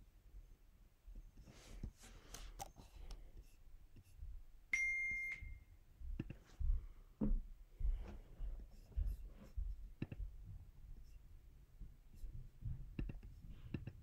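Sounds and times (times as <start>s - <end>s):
soft rustling: 1.2s - 4.4s.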